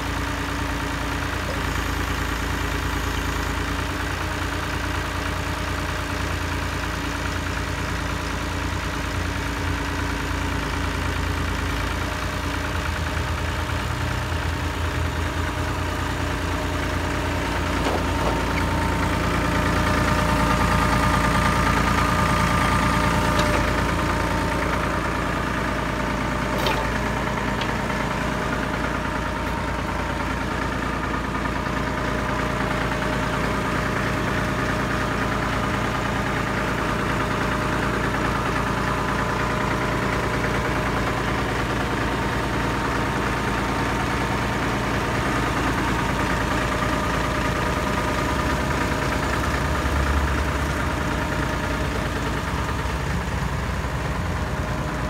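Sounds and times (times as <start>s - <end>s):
tractor engine running: 0.0s - 55.0s
sharp knocks: 26.6s - 27.0s.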